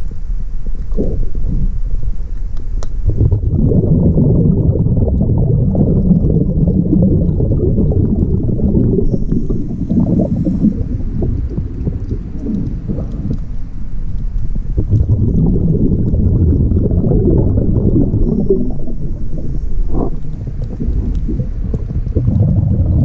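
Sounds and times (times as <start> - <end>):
exhaled bubbles underwater: 0.7 - 2.3, 3.0 - 23.0
regulator hissing inhale: 8.8 - 11.1.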